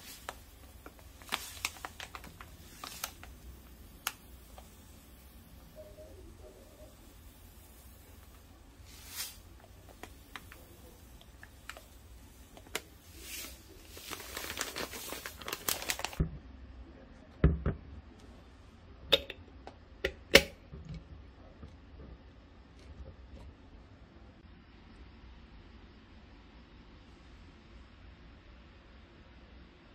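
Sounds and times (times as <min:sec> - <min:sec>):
plastic bag rustling and crinkling: 0:00.0 - 0:04.9, 0:08.1 - 0:16.2.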